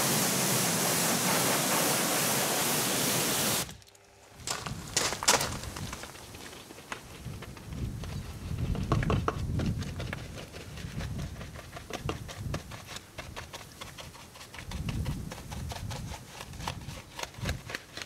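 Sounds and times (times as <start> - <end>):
wash mitt scrubbing wheel: 0.0 - 3.7.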